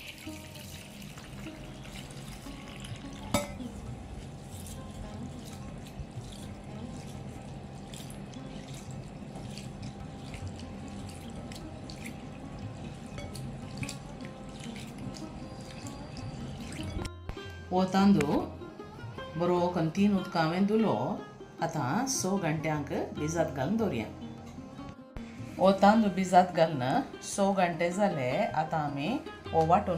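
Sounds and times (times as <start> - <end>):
water pouring into glass bowl: 0.0 - 3.8, 4.4 - 17.1.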